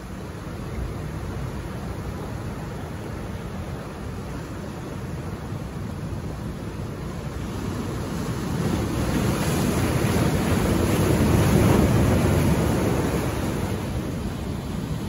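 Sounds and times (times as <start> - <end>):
surf breaking over rocks: 6.8 - 15.0.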